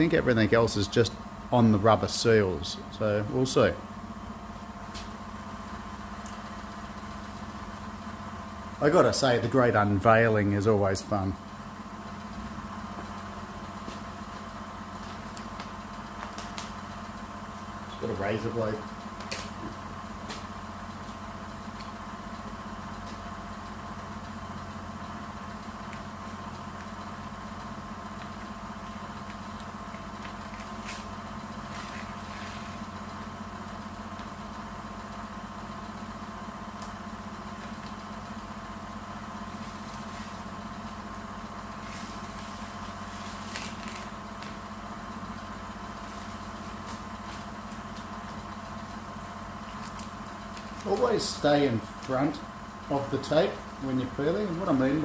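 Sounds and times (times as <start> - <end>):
machine hum: 0.0 - 55.0
masking tape peeled off: 29.1 - 33.0, 41.7 - 44.7, 49.6 - 51.2.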